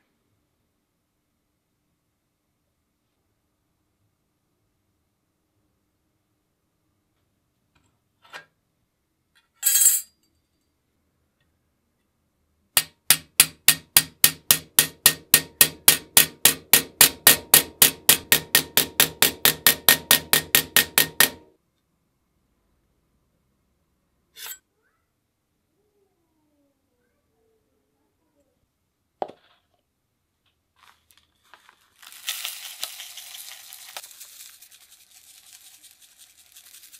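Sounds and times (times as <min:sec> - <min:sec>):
hammer striking metal: 0:12.8 - 0:21.5.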